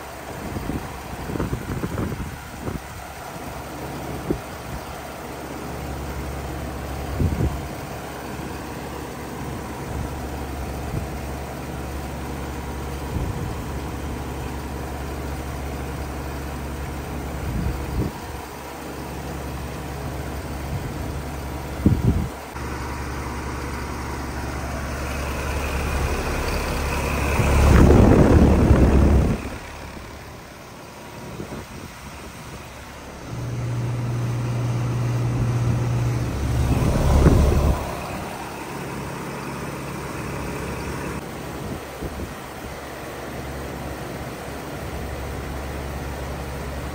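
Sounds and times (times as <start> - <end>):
heat pump humming: 0.0 - 46.9
loud rushing burst of noise: 22.6 - 41.2.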